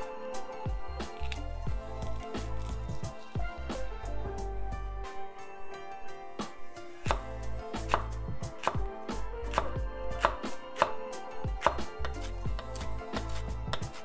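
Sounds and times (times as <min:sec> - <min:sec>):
knife chopping on wooden board: 0:07.1 - 0:08.9, 0:09.5 - 0:14.0.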